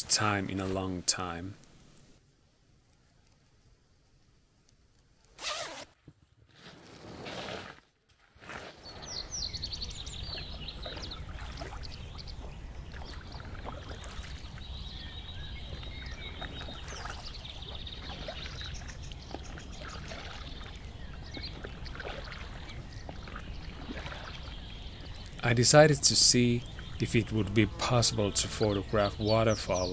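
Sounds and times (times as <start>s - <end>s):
water splashing around boat: 8.4s - 29.9s
small birds chirping: 8.7s - 29.9s.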